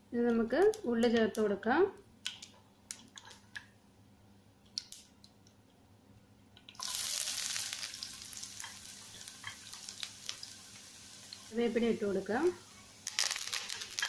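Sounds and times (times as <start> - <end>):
seeds popping in hot oil: 2.2 - 3.8, 4.7 - 5.4, 6.6 - 14.0
onion sizzling in oil: 6.8 - 14.0.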